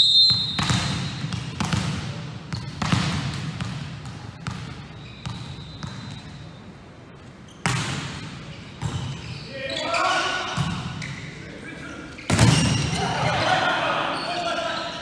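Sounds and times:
volleyball bouncing on gym floor: 0.2 - 6.3, 7.6 - 9.2, 10.5 - 11.1, 12.3 - 13.1
volleyball serve slap: 0.3 - 6.0.

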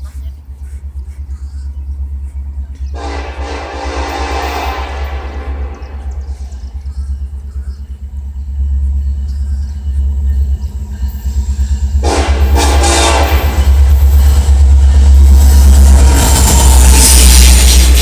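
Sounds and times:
diesel locomotive rumble: 0.0 - 18.0
train horn: 2.9 - 6.4, 12.0 - 14.1.

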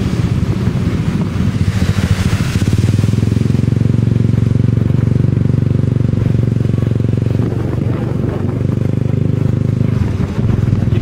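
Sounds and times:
motorbike engine droning: 0.0 - 11.0
water spray hissing: 1.4 - 3.6.

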